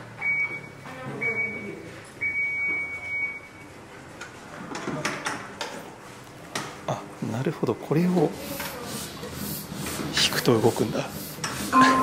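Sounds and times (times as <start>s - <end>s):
high electronic beep: 11.7s - 12.0s.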